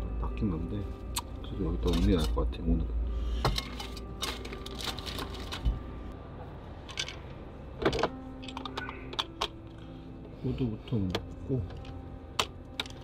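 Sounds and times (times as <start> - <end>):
objects clicking and rattling: 1.8 - 2.4, 6.9 - 9.8.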